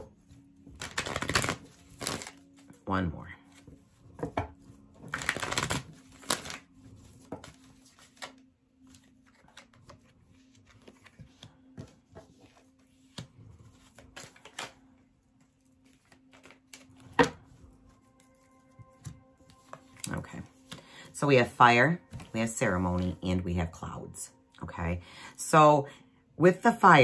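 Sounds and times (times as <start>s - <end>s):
cards tapping and clicking: 0.6s - 2.4s, 4.2s - 6.6s, 10.8s - 14.8s, 15.8s - 17.4s
cards being shuffled: 0.6s - 2.8s, 5.0s - 14.8s, 15.8s - 17.4s.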